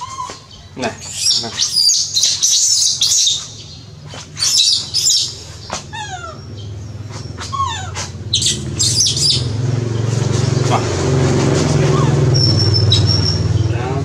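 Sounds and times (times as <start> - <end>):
infant monkey screaming: 0.0 - 3.7, 4.4 - 9.7, 11.6 - 13.6.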